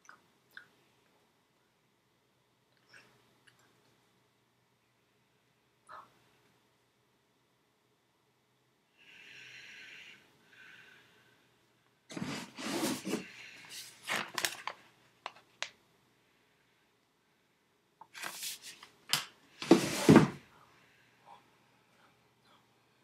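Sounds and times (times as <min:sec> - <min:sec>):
book handling rustling and knocks: 0:18.2 - 0:20.4.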